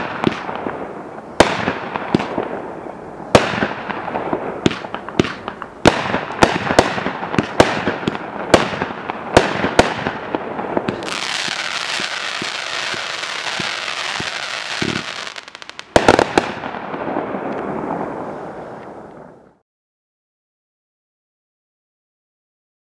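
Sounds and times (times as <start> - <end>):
fireworks shot reports: 10.8 - 18.6
fireworks hissing sizzle: 10.9 - 16.4.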